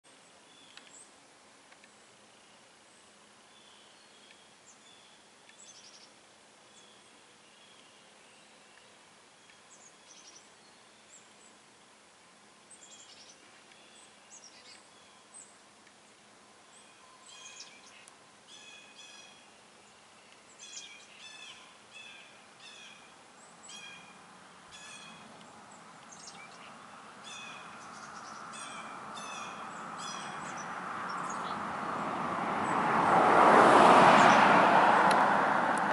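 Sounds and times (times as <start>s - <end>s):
songbirds chirping: 0.0s - 35.2s
vehicle passing: 26.7s - 35.9s.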